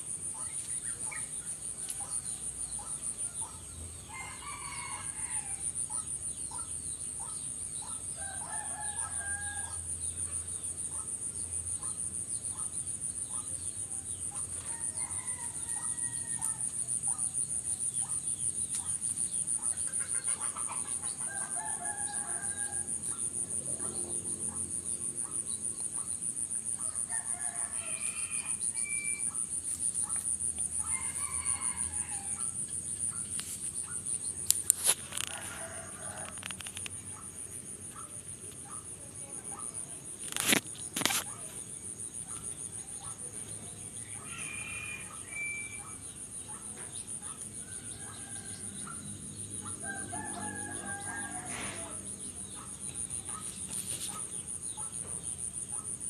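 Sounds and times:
roosters crowing: 30.8s - 32.4s, 44.0s - 45.8s, 49.8s - 52.1s.

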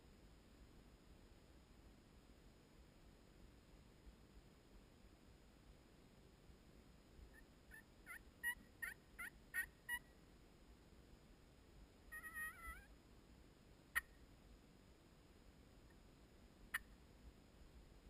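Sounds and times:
turkey yelping: 7.3s - 10.0s, 12.1s - 12.9s
turkey clucking: 8.1s - 10.0s.

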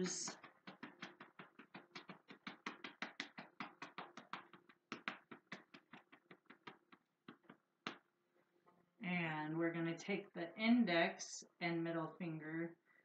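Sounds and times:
hands patting back: 0.0s - 8.2s.

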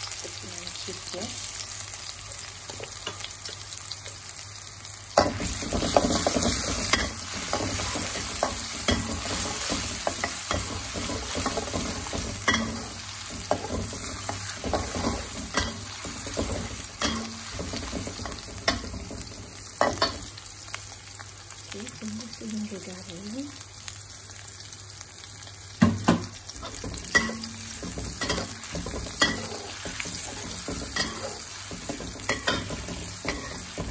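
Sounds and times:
food sizzling in hot oil: 0.0s - 33.9s
metal spatula scraping wok: 26.6s - 33.9s.

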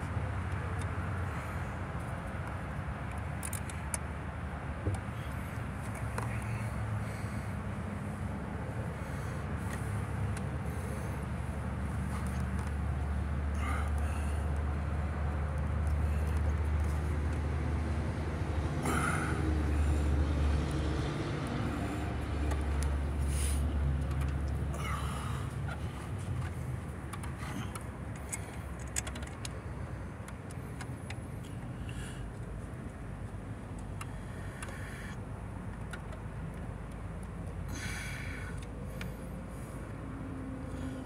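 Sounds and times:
vehicle engine humming: 0.0s - 41.0s
light clicks and rattles: 21.6s - 24.8s, 25.5s - 37.6s.

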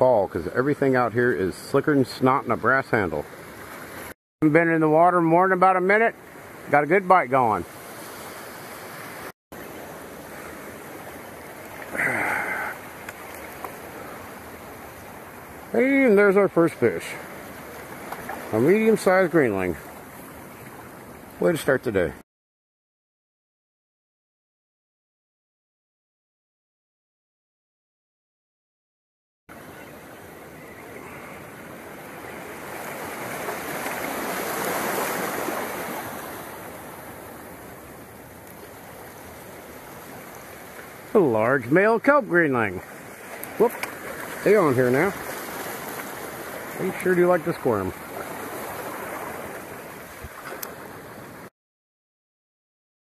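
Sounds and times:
surf washing among rocks: 0.4s - 22.1s, 29.5s - 51.5s.

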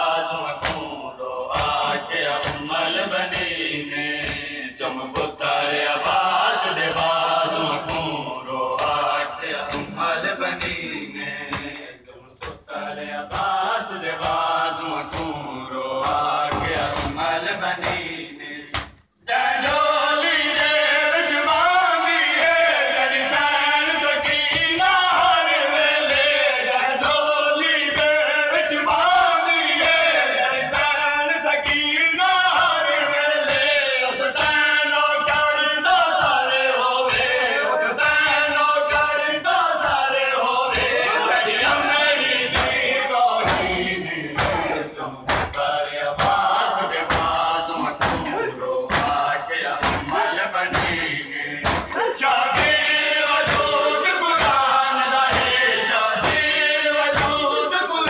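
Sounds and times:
hands slapping chests: 0.0s - 4.6s, 5.2s - 11.8s, 12.4s - 19.9s, 26.0s - 26.4s, 35.2s - 37.4s, 38.0s - 55.6s, 56.2s - 57.5s
men chanting in unison: 0.0s - 58.0s.

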